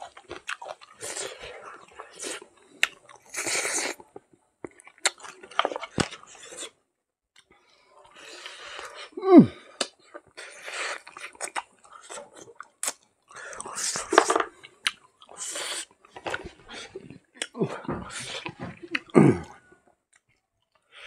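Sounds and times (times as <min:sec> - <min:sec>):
man chewing food: 0:00.0 - 0:06.8, 0:07.4 - 0:20.9
wet mouth noises and clicks: 0:12.6 - 0:13.0.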